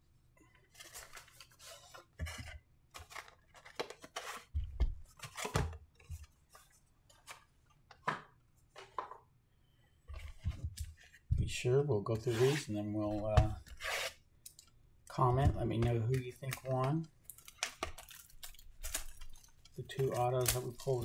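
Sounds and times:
cardboard and foil rustling: 16.4s - 21.0s.

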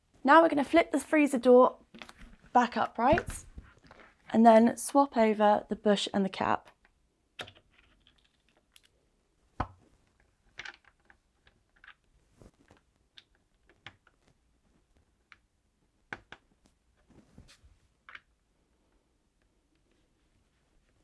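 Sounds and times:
small plastic parts clicking: 10.5s - 12.1s.

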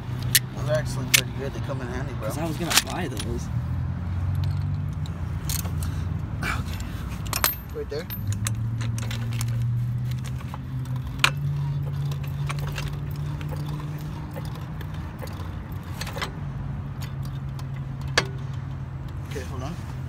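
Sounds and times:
engine humming: 0.0s - 20.0s
metallic clinks of tools: 6.5s - 16.4s.

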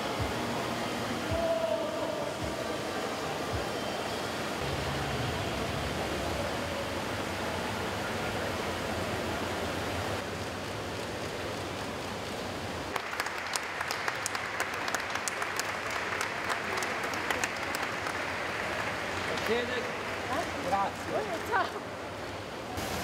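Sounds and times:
indoor swimming pool hubbub: 0.0s - 23.0s
scattered hand clapping: 12.9s - 20.6s.

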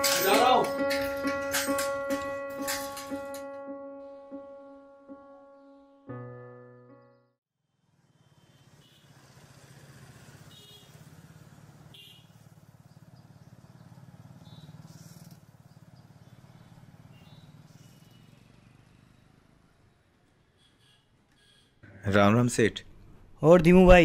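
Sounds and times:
street ambience: 0.0s - 3.7s, 7.8s - 24.0s
motorcycle engine running: 7.9s - 19.8s.

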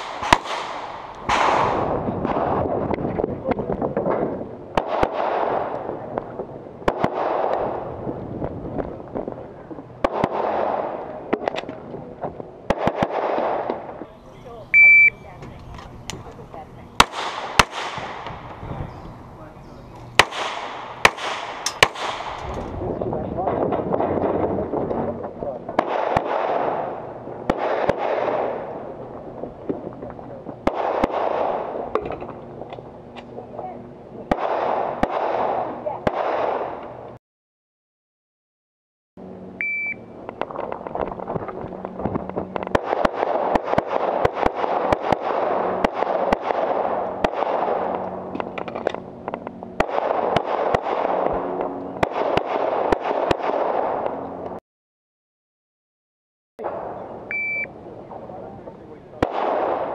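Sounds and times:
pistol shots: 0.0s - 2.6s, 4.8s - 5.9s, 6.8s - 7.8s, 10.0s - 11.6s, 12.7s - 13.9s, 17.0s - 18.6s, 20.1s - 22.7s, 25.8s - 28.8s, 30.6s - 32.0s, 34.3s - 36.8s, 42.6s - 48.0s, 49.8s - 51.3s, 52.0s - 54.0s, 59.2s - 59.9s.

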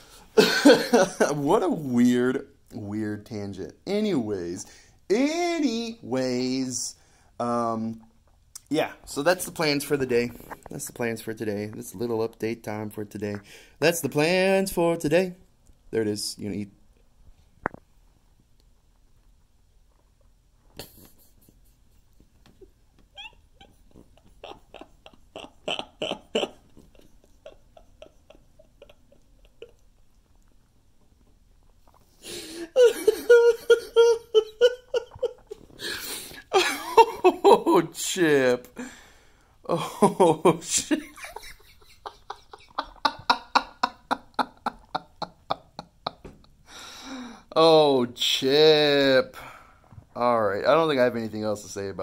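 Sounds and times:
guinea pig chewing: 23.2s - 32.2s.

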